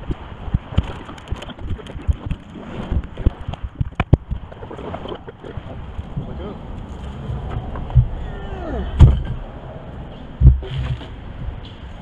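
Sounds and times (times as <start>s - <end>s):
plastic knocks and clatter: 0.0s - 4.6s
wind buffeting microphone: 0.0s - 12.0s.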